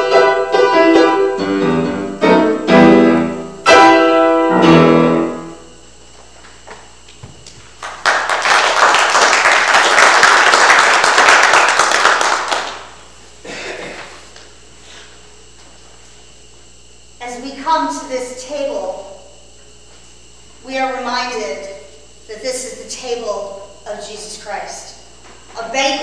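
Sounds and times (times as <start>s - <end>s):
piano chords: 0.0s - 5.8s.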